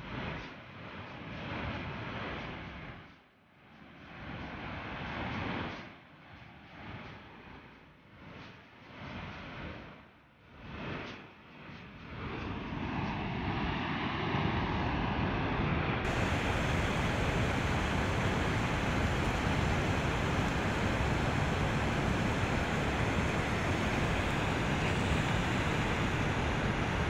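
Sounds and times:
wind buffeting microphone: 0:16.0 - 0:27.0
river water rushing: 0:16.1 - 0:27.0.

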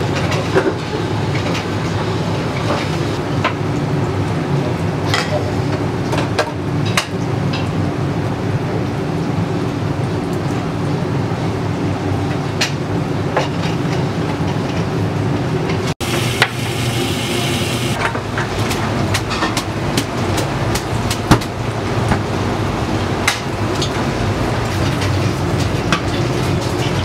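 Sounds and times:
kitchen machinery rumble: 0:11.4 - 0:27.0.

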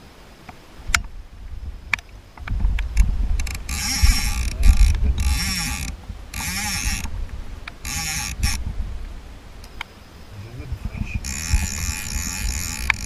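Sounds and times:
low rumble: 0:00.9 - 0:09.7
fly reel ratchet buzzing: 0:03.4 - 0:07.1, 0:07.8 - 0:08.6, 0:11.1 - 0:13.0
single reel clicks: 0:11.3 - 0:13.0.

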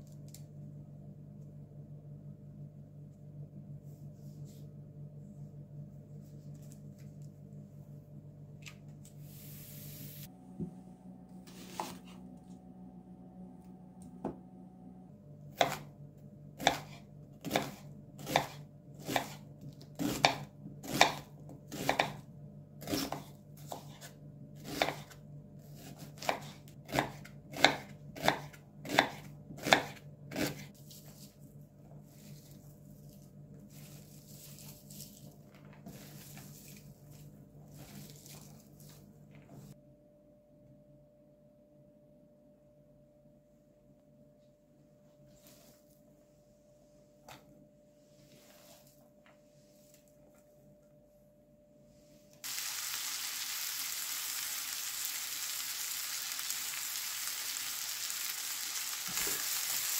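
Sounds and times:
knife slicing onion on board: 0:15.5 - 0:15.9, 0:16.6 - 0:31.3.

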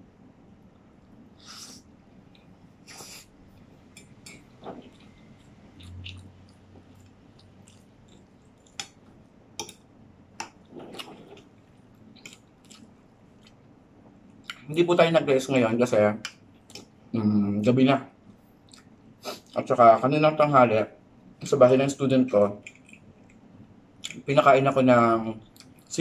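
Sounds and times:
soft chewing: 0:00.6 - 0:14.8, 0:16.2 - 0:17.0, 0:18.2 - 0:19.7, 0:22.3 - 0:24.3, 0:25.3 - 0:26.0.

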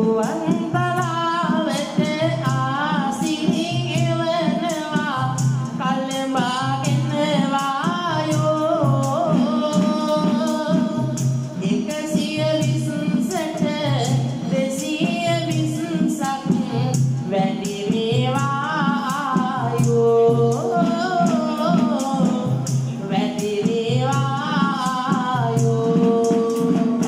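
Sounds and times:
frame drum with jingles: 0:00.0 - 0:27.0.

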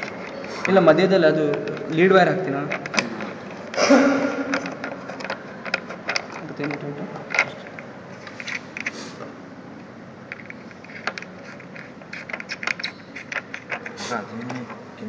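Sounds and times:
small clicks and scrapes of terminal: 0:04.5 - 0:09.2, 0:10.3 - 0:14.7.

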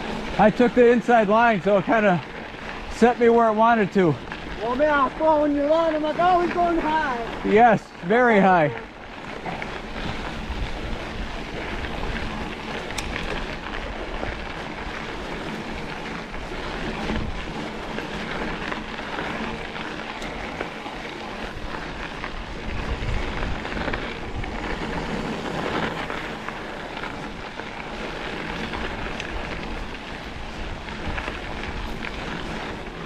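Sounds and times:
tyres rumbling on dirt: 0:00.0 - 0:33.0
wind on microphone: 0:08.8 - 0:15.0, 0:21.4 - 0:33.0.

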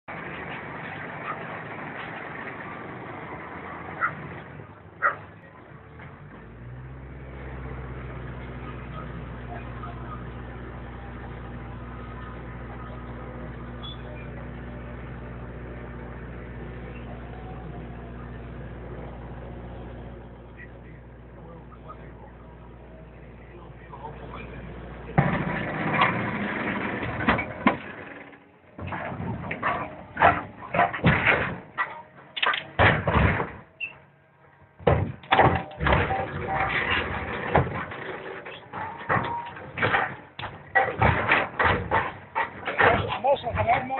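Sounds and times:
dense machine noise: 0:00.1 - 0:43.9
motorboat engine humming: 0:00.1 - 0:43.9
sharp metal bangs and cracks: 0:25.1 - 0:34.1, 0:34.8 - 0:43.9.

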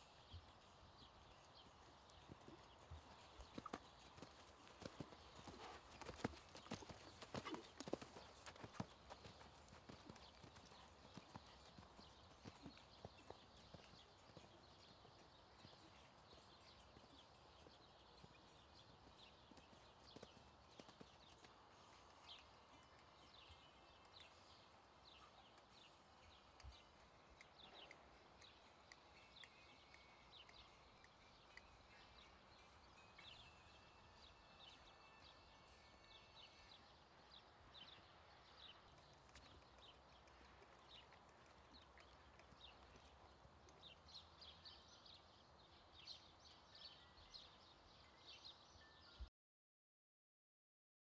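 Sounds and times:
muffled hoofbeats on sand: 0:00.2 - 0:32.6, 0:37.3 - 0:45.2.

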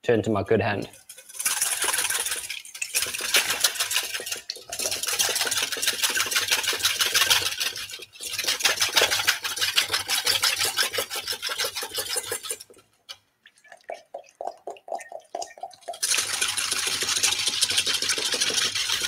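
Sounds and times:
whisk beating in metal bowl: 0:00.9 - 0:12.8, 0:14.6 - 0:19.0.

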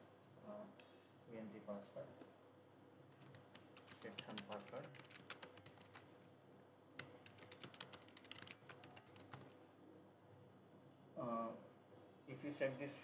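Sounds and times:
faint keyboard typing: 0:03.0 - 0:06.2, 0:06.9 - 0:09.7.

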